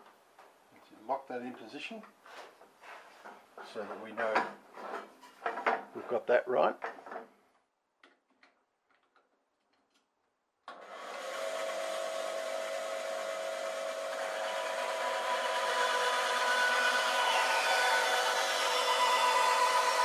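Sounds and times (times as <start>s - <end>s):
bandsaw running: 10.7s - 20.0s.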